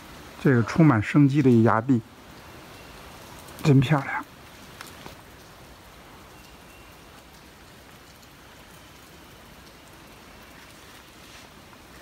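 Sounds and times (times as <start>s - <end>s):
faint hiss of running water: 0.0s - 12.0s
faint ticks: 4.8s - 5.5s.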